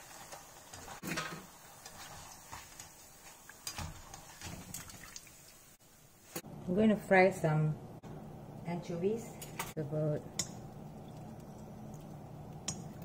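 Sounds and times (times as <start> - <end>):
oil sizzling in a wok: 0.0 - 6.4.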